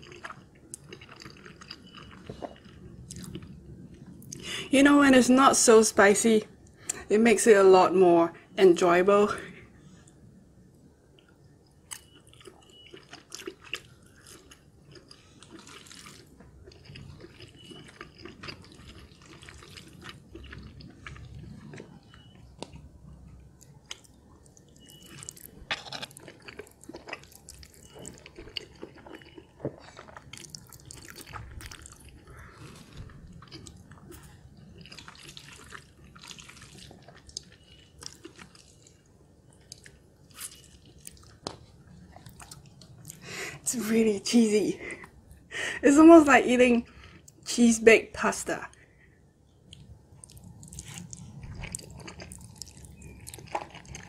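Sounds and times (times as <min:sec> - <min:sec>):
wet chewing: 0:00.0 - 0:04.4, 0:11.2 - 0:43.4, 0:49.5 - 0:54.0.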